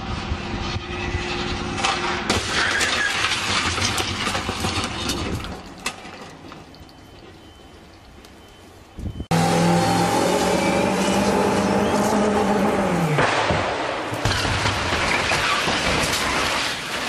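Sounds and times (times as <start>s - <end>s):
debris and glass clattering: 1.8s - 8.1s, 13.2s - 17.0s
car crashing into barrier: 13.1s - 17.0s.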